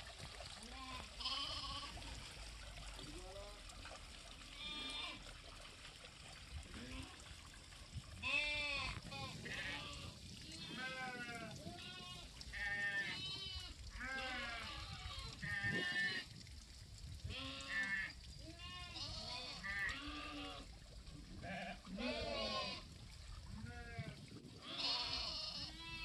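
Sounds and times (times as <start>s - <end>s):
sheep and goats bleating: 0.6s - 2.0s, 4.5s - 5.2s, 6.7s - 7.2s, 8.2s - 16.3s, 17.2s - 20.7s, 21.4s - 22.9s, 23.5s - 26.0s.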